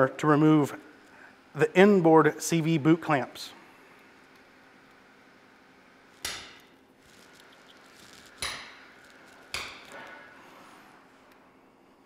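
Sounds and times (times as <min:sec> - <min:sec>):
hammer tapping metal: 0:08.4 - 0:08.9, 0:09.5 - 0:10.1.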